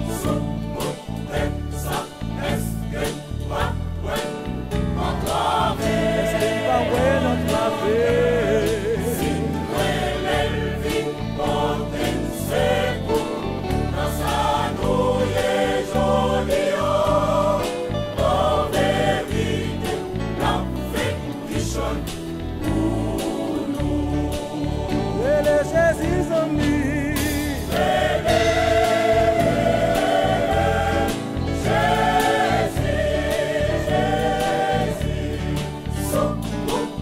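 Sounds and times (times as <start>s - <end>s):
choir singing gospel: 0.0s - 37.0s
band with drum beat and bass: 16.6s - 37.0s.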